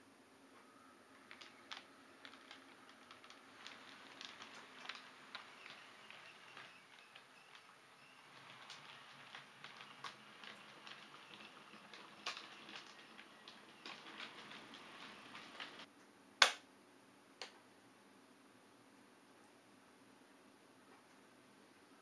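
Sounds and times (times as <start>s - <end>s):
model train wheels clicking: 1.2s - 15.9s.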